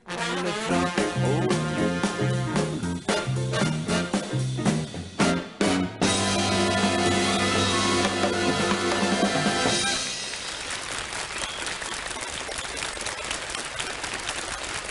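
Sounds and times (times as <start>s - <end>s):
live band with brass and drums: 0.0s - 10.8s
audience applauding: 6.2s - 14.9s.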